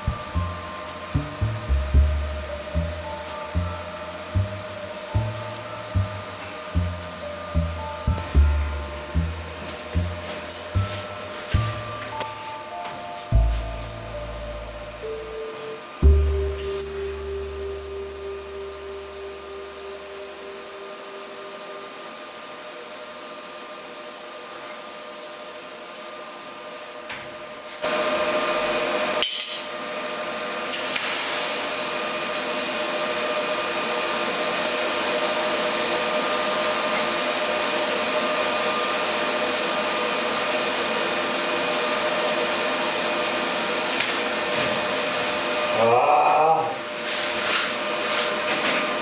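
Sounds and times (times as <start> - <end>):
faint steady whine: 0.0 - 24.3.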